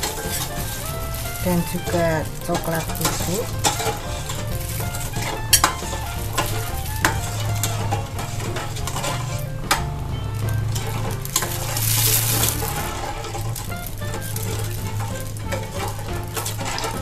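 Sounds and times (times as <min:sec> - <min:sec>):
metal ladle stirring liquid: 0:02.2 - 0:09.4, 0:10.7 - 0:17.0.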